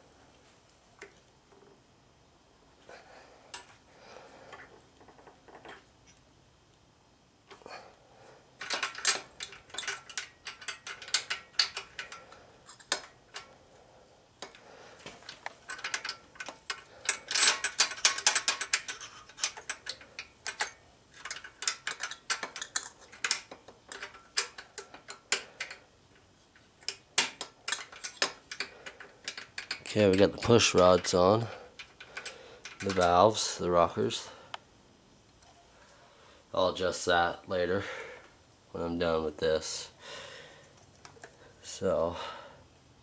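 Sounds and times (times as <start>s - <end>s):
metallic clicks and ticks: 8.6s - 13.6s, 14.4s - 33.5s.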